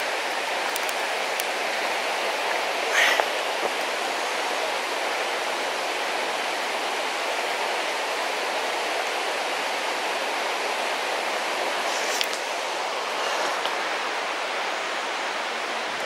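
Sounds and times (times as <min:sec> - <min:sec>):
river water rushing over rocks: 0:00.0 - 0:16.0.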